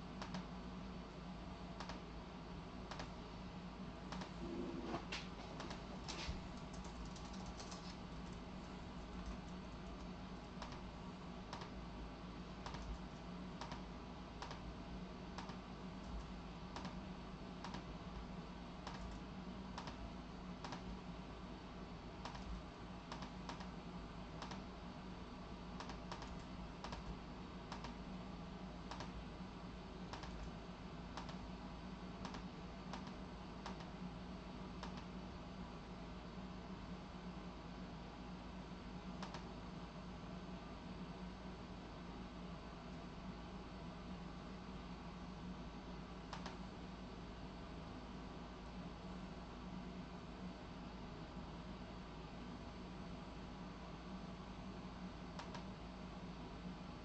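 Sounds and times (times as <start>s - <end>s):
low background hum: 0.0s - 57.0s
typing on computer keyboard: 6.6s - 8.4s, 25.8s - 27.1s.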